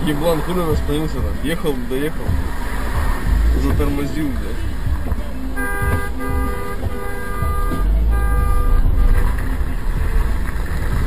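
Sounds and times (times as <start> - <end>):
low rumble of car and road: 0.0 - 11.0
car horn honking: 5.4 - 9.7.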